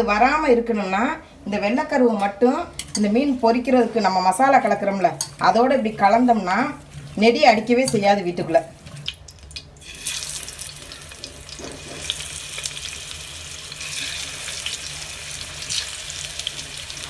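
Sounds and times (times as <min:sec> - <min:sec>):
fish sizzling in hot oil: 0:09.1 - 0:17.0.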